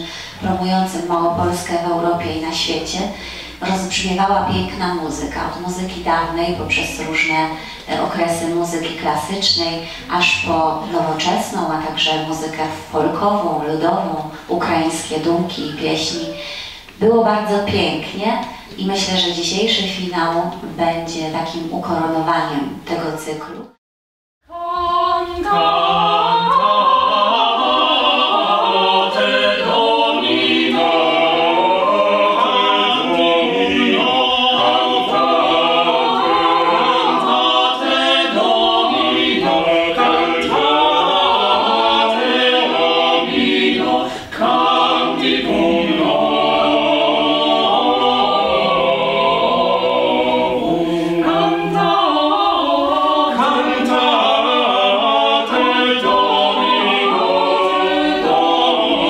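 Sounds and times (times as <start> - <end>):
vocal ensemble singing a cappella: 0.0 - 23.6, 24.5 - 59.0.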